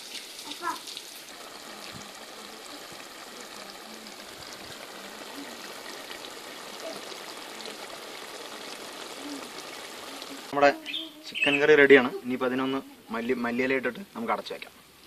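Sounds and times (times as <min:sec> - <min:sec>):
curry bubbling in a metal pot: 0:00.0 - 0:10.5.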